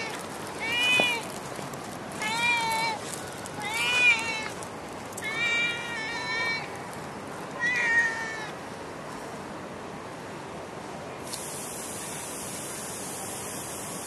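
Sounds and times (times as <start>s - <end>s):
cat meowing: 0.0s - 1.3s, 2.2s - 4.6s, 5.2s - 6.7s, 7.6s - 8.6s
steady hiss: 8.6s - 14.0s.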